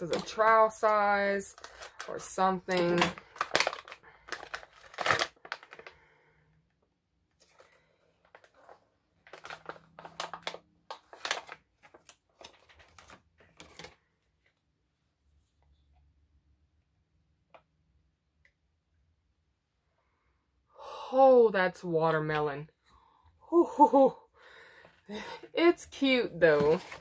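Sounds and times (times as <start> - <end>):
packaging crinkling and rustling: 0.0 - 6.0, 7.3 - 14.5, 26.4 - 27.0.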